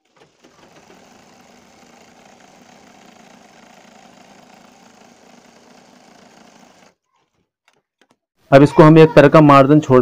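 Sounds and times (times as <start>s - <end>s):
sewing machine running: 0.0s - 7.0s.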